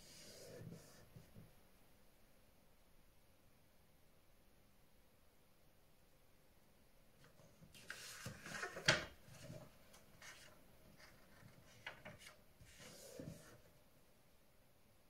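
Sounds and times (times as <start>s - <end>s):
paper rustling and sliding: 7.2s - 13.7s.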